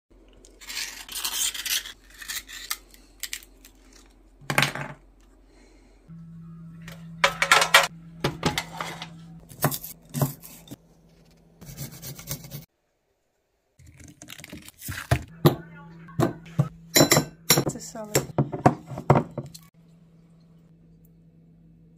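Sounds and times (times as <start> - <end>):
knife scraping shell: 0.6 - 3.4
steady low hum: 5.1 - 11.8, 19.7 - 21.9.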